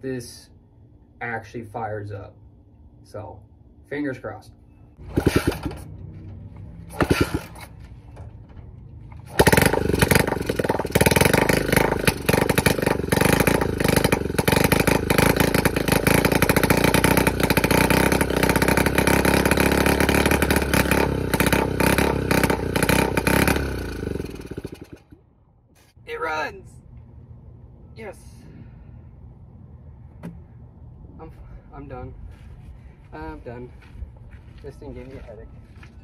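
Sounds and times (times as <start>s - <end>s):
small motorcycle engine revving: 5.0s - 7.8s, 9.1s - 25.2s.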